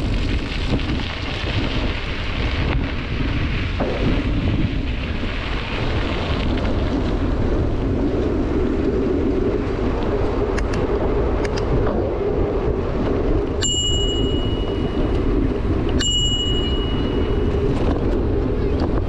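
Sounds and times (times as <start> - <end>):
steady rushing noise: 0.0 - 19.0
small bell ringing: 13.6 - 15.0, 16.0 - 17.6.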